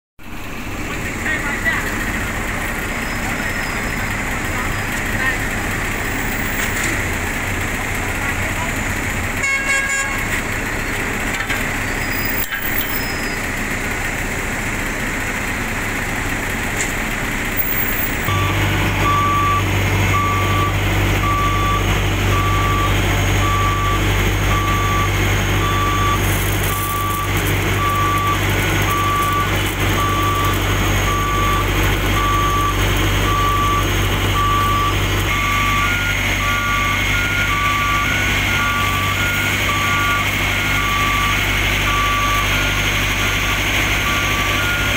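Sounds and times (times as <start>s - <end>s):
heavy engine low hum: 0.2s - 44.9s
reversing alarm beeping: 12.0s - 13.4s, 17.6s - 44.9s
higher reversing alarm beeping: 17.6s - 44.9s.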